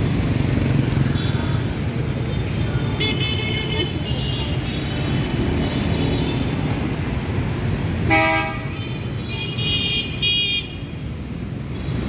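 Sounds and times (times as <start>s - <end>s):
street traffic rumble: 0.0s - 12.0s
vehicle horns honking: 8.0s - 10.9s.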